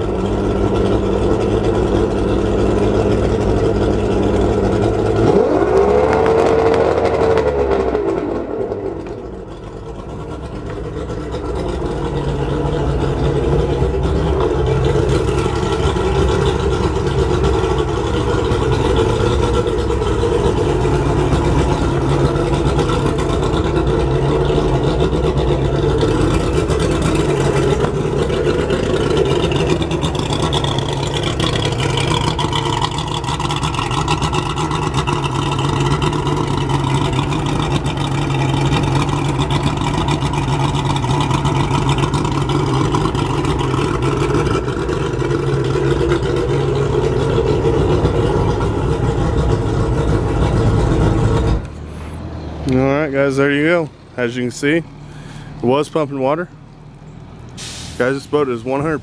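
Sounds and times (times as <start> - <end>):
outboard motor running: 0.0 - 59.0.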